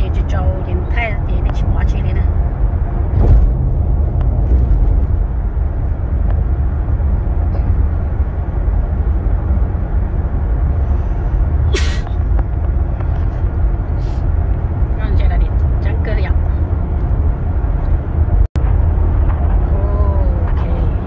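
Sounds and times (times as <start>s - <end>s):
car cabin road rumble: 0.0s - 21.0s.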